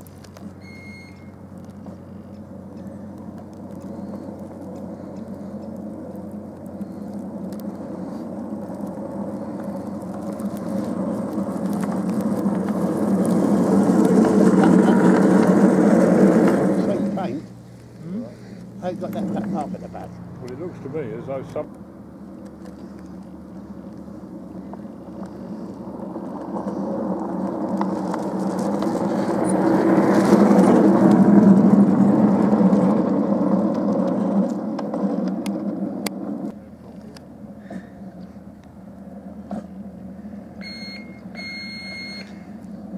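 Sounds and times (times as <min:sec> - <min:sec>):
miniature train wheels rumbling on rails: 0:00.0 - 0:17.4, 0:22.4 - 0:38.7.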